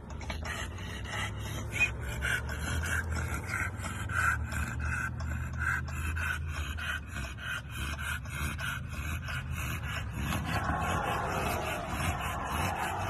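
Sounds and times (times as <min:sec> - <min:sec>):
dog panting hard: 0:00.0 - 0:13.0.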